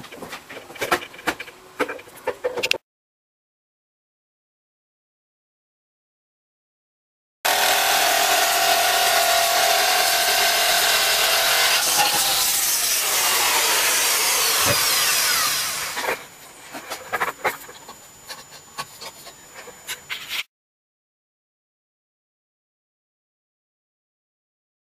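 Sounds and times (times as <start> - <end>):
jigsaw cutting panel: 7.5 - 16.2.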